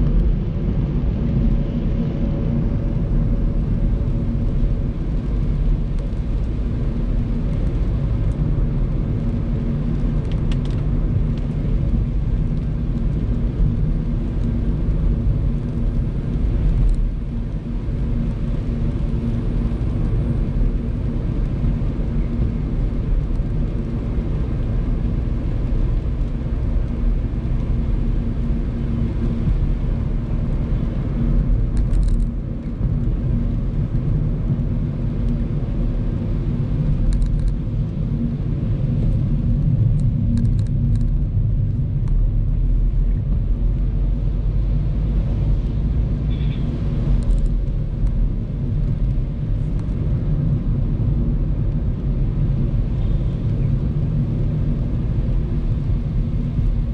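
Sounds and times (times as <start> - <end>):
car engine and tyres on wet road: 0.0 - 56.9.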